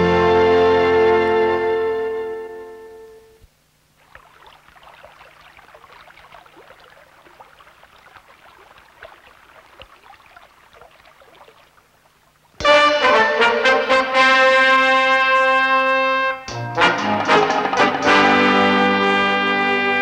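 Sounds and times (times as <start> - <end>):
faint babbling brook: 3.8 - 12.6.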